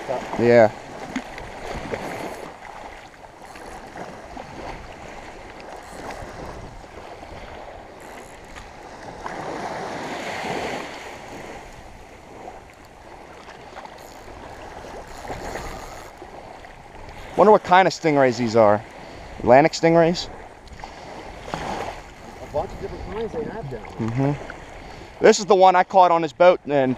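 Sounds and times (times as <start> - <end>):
shallow surf lapping: 0.0 - 26.9
wind noise: 3.5 - 13.2, 20.6 - 25.0.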